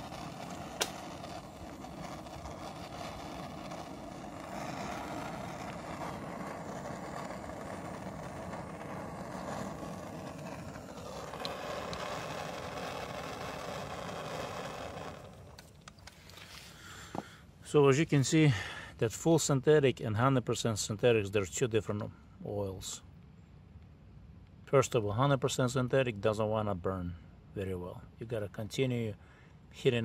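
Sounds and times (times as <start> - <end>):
blowtorch flame hissing: 0.0 - 17.2.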